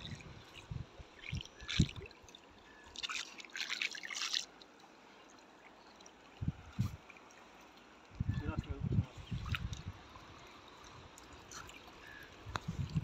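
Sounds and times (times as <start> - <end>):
water trickling off a net: 0.0 - 13.0.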